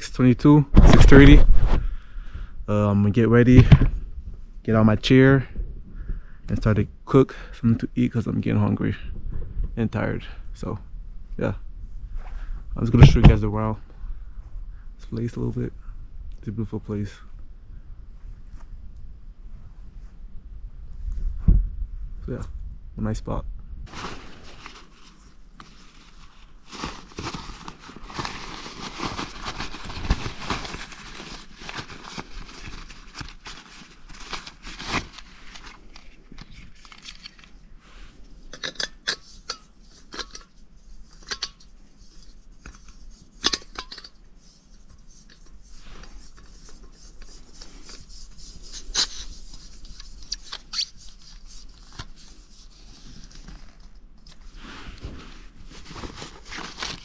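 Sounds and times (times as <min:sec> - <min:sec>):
camping gear rustling and crinkling: 0:00.7 - 0:01.9, 0:23.9 - 0:57.0.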